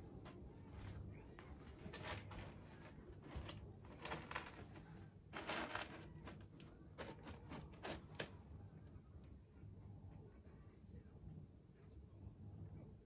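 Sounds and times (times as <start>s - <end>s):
cat scratching in litter: 1.7s - 8.4s.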